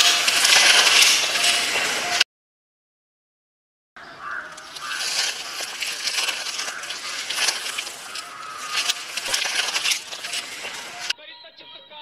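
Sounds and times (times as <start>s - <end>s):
dry grass and leaves crunching: 0.0s - 2.2s, 4.0s - 11.1s.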